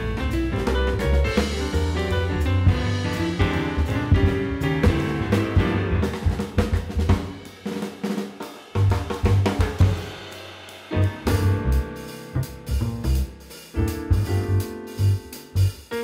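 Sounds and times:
background music with drum kit: 0.0s - 16.0s.

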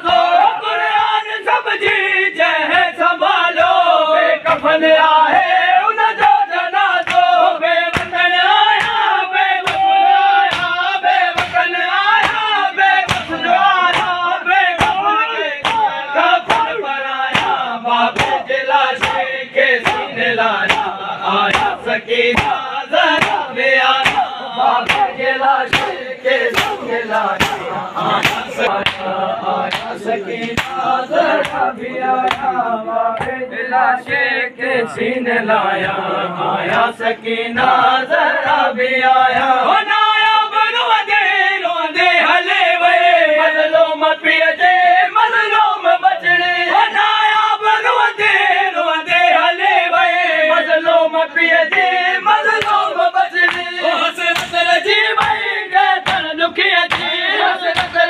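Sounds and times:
men chanting lament: 0.0s - 58.0s
hands beating chests: 14.8s - 16.7s, 17.3s - 18.4s, 19.0s - 32.6s, 56.0s - 58.0s.

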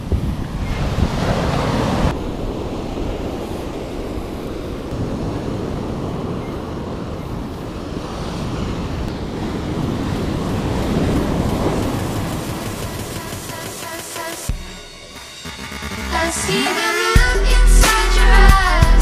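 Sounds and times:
wind buffeting microphone: 0.0s - 13.4s
surf breaking on rocks: 0.0s - 14.4s.

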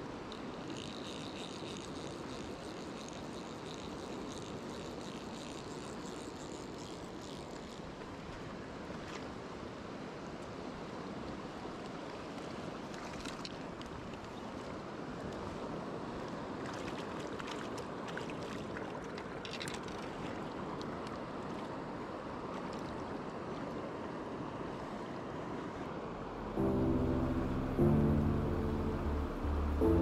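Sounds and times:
river water flowing: 0.0s - 30.0s.

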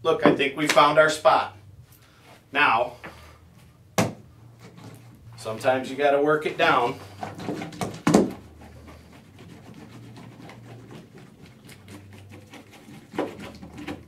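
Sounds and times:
magnet scraping over drywall: 6.5s - 14.0s.

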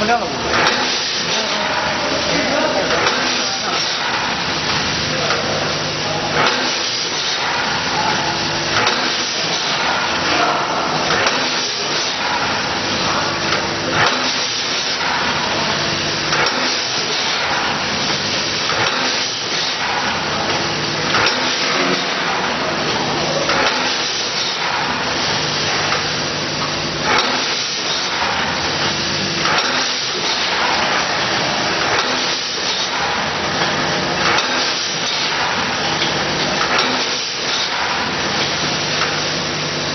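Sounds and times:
bagging machine running: 0.0s - 39.9s.

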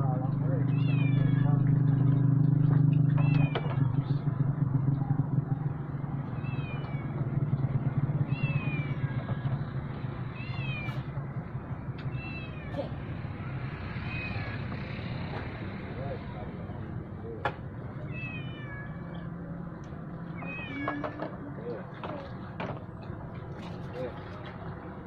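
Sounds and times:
cat meowing: 0.7s - 1.7s, 3.1s - 3.8s, 6.3s - 7.2s, 8.3s - 9.6s, 10.3s - 11.1s, 12.1s - 13.1s, 18.0s - 19.5s, 20.3s - 21.3s.

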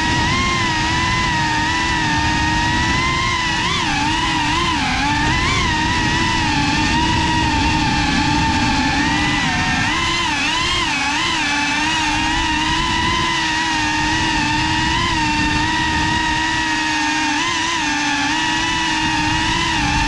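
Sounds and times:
drone motors whining: 0.0s - 20.0s.

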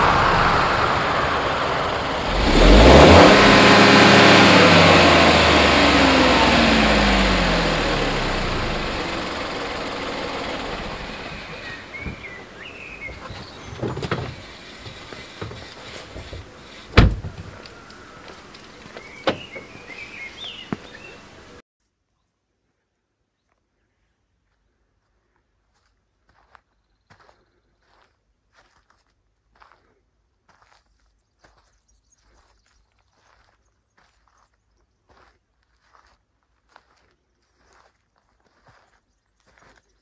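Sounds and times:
car engine pulling away: 0.0s - 21.6s
sharp knocks: 17.0s - 17.6s.

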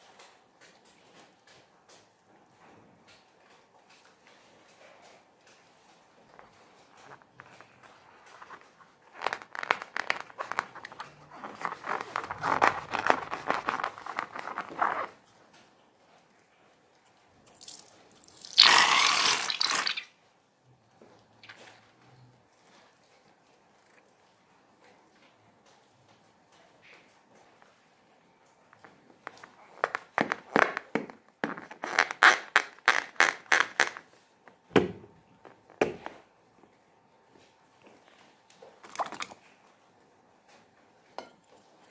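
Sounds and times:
balloon crackling and creaking: 6.3s - 15.2s, 28.8s - 34.2s
slime squirting into liquid: 17.5s - 20.1s, 38.8s - 39.4s.

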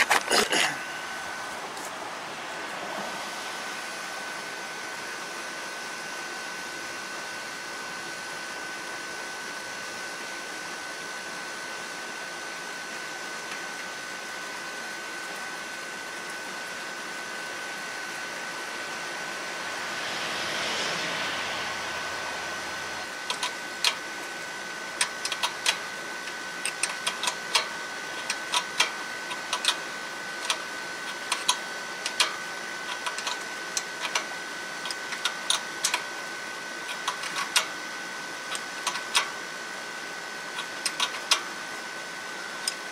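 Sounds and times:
steady hiss with high whine: 0.8s - 42.9s
rushing noise: 18.9s - 23.1s
wrench clicking: 25.0s - 25.8s, 26.6s - 29.8s, 30.4s - 32.3s, 32.9s - 33.4s, 34.0s - 34.3s, 38.5s - 39.3s, 40.6s - 41.4s.

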